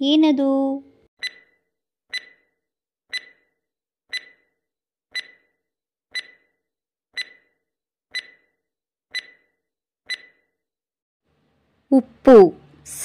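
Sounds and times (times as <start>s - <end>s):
sharp ringing timer ticks: 1.2s - 6.6s, 7.2s - 10.5s.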